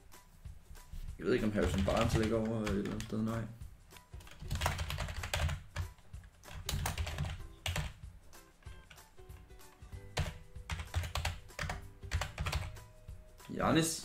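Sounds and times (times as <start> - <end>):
background music: 0.0 - 14.0
typing on computer keyboard: 1.5 - 3.1, 4.2 - 8.0, 10.1 - 12.8.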